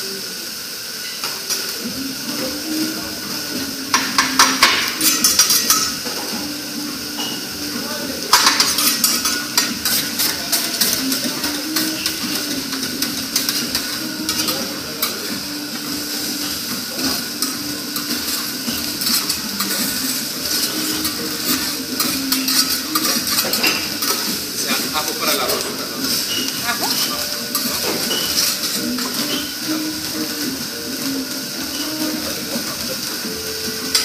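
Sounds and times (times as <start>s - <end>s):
steady sizzle: 0.0s - 34.0s
spatulas clacking on griddle: 3.9s - 6.2s, 8.3s - 15.4s, 16.0s - 29.6s.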